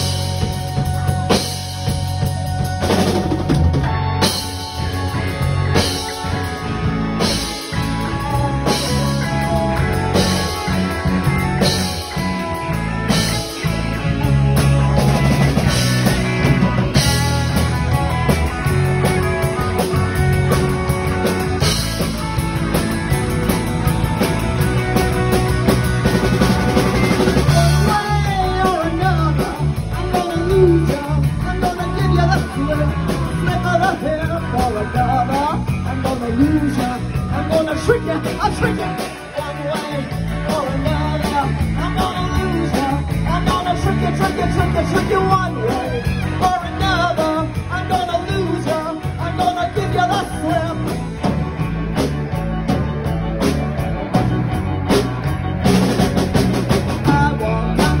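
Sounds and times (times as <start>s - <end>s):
lead vocalist singing: 0.0s - 13.3s, 27.2s - 51.3s, 56.9s - 58.0s
drum kit: 0.0s - 58.0s
electric guitar: 0.0s - 58.0s.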